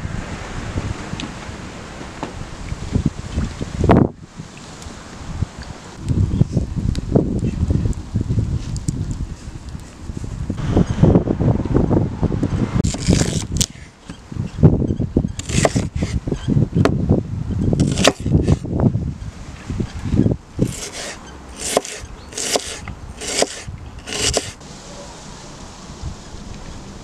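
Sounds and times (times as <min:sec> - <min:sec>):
low rumble: 0:10.5 - 0:12.9
knife chopping on wooden board: 0:15.4 - 0:16.1, 0:17.8 - 0:18.6, 0:20.6 - 0:24.6.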